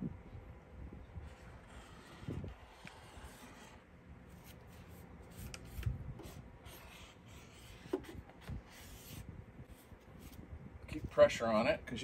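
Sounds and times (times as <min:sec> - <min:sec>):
pen scratching on cardboard: 0:01.2 - 0:10.4.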